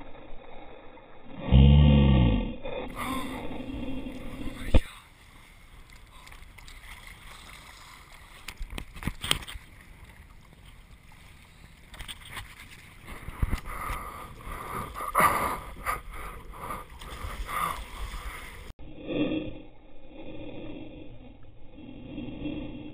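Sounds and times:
water splashes: 0:02.9 - 0:18.7.

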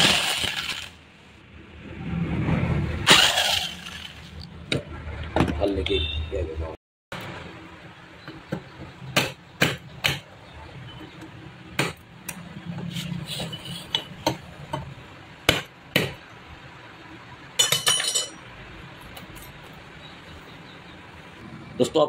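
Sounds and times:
small metal parts clinking: 0:17.6 - 0:18.4.

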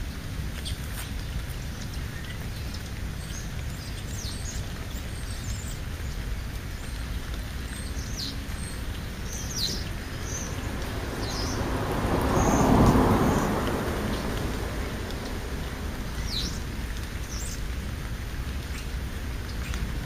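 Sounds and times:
low outdoor rumble: 0:00.0 - 0:20.0
small birds chirping: 0:00.5 - 0:20.0
vehicle passing: 0:08.2 - 0:18.6.

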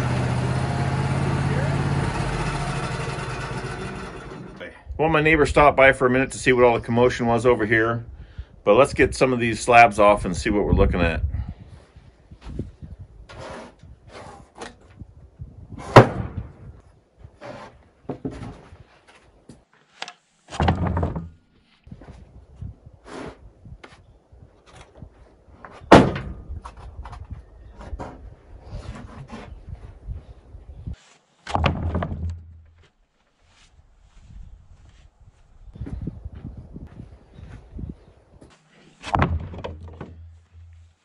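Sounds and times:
wood slabs sliding: 0:13.3 - 0:14.8, 0:17.4 - 0:21.4
heavy wood slab thuds: 0:15.8 - 0:16.7, 0:20.5 - 0:21.4, 0:25.9 - 0:26.5, 0:31.5 - 0:32.8, 0:39.0 - 0:40.9
wooden knocks and clunks: 0:17.4 - 0:19.6, 0:20.5 - 0:21.4, 0:24.6 - 0:29.6, 0:31.4 - 0:32.9, 0:38.4 - 0:40.9.

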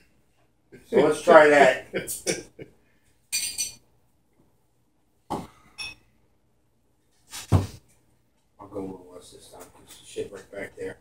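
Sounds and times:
glass clinking: 0:03.3 - 0:03.8, 0:05.3 - 0:06.1.

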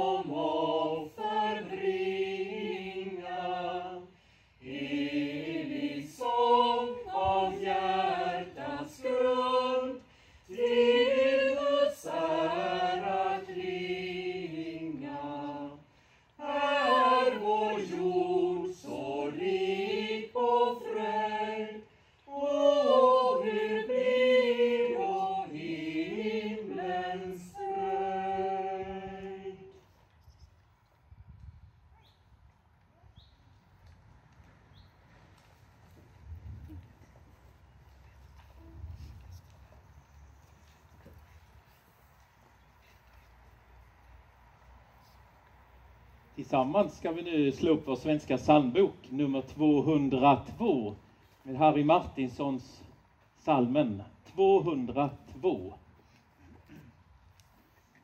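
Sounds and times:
choir singing a cappella: 0:00.0 - 0:29.9.

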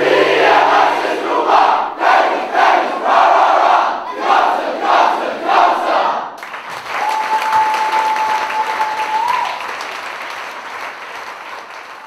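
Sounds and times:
crowd chanting: 0:00.0 - 0:06.4
applause and cheering: 0:06.4 - 0:12.0.

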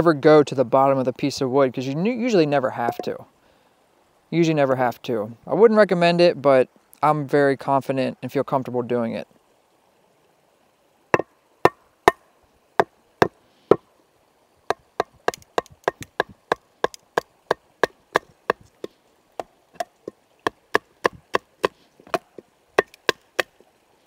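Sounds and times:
wooden baton knocking on knife: 0:15.0 - 0:17.0.

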